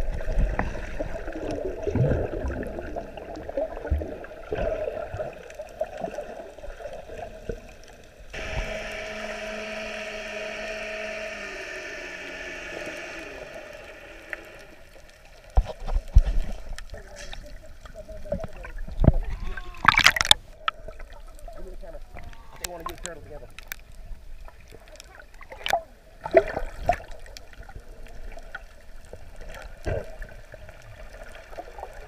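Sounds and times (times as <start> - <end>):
underwater gurgling and bubbling: 0.0 - 9.0, 11.6 - 23.7
steady hum with held tones: 8.3 - 15.8.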